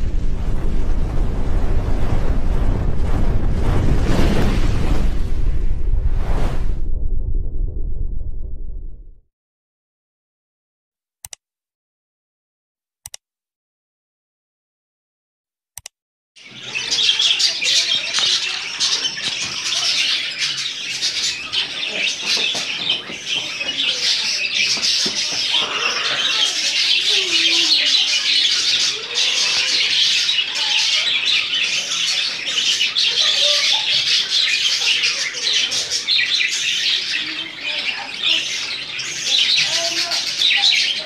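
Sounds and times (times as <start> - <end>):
budgerigars chattering: 16.4 - 41.0.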